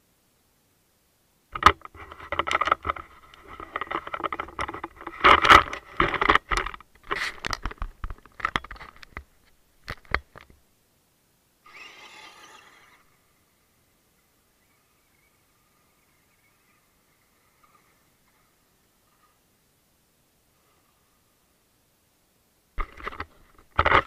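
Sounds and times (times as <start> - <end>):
toy truck motor whining: 11.6 - 13.4.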